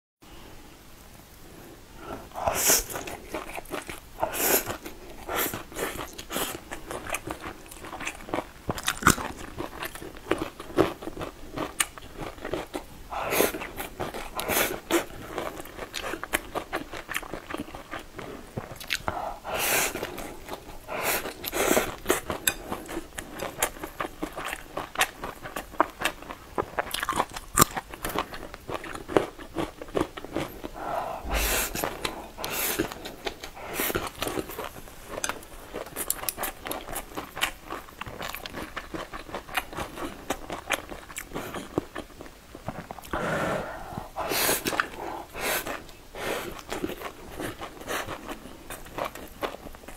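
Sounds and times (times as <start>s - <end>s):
wet chewing and biting: 4.6s - 12.9s, 13.5s - 43.2s.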